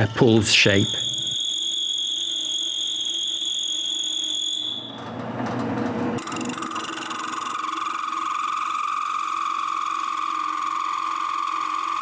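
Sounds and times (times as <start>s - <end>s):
wood lathe whining: 0.0s - 4.9s, 6.2s - 12.0s.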